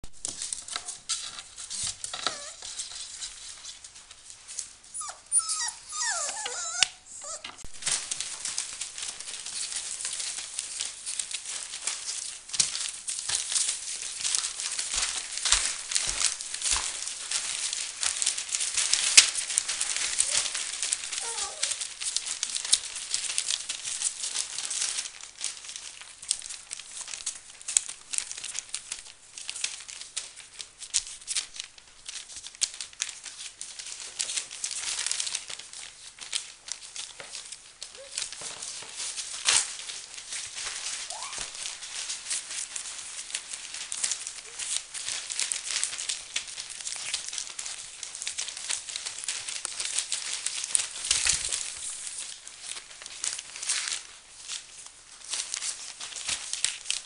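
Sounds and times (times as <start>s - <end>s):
newspaper crinkling under paws: 0.1s - 57.0s
puppy whimpers: 2.2s - 2.7s, 4.9s - 7.7s, 20.2s - 20.6s, 21.2s - 21.8s, 37.9s - 38.3s, 41.1s - 41.6s.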